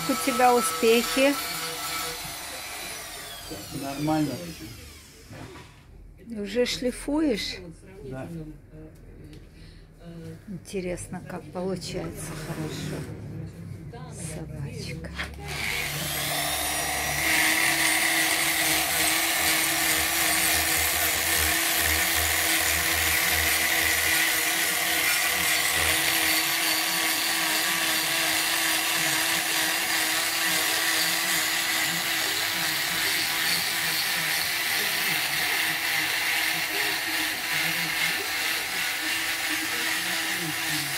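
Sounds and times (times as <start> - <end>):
die grinder whining: 0.0 - 5.7, 15.2 - 40.9.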